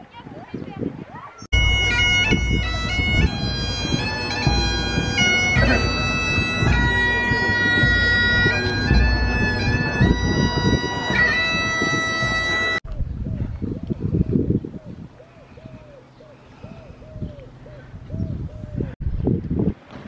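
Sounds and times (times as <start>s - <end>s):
bagpipes playing a tune: 1.5s - 12.8s.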